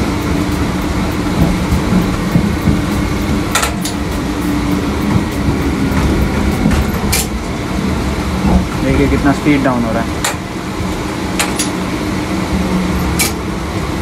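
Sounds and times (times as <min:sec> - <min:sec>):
electric train rumbling and braking: 0:00.0 - 0:14.0.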